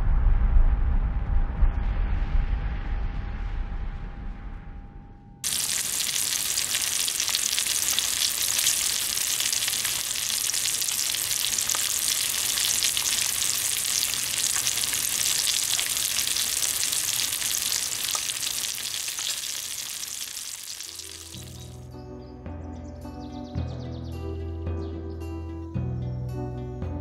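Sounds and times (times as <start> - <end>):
crackling hiss: 5.4 - 21.8.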